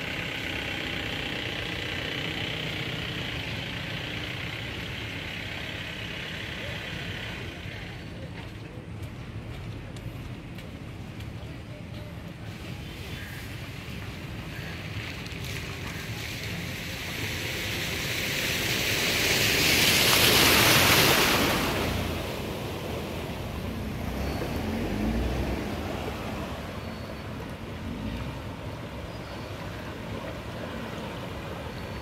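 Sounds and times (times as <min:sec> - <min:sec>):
floodwater rushing: 0:12.6 - 0:32.0.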